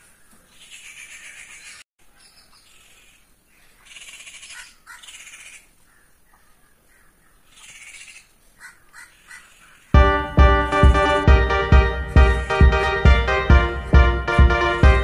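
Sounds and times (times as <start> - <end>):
crow cawing: 7.8 - 9.6.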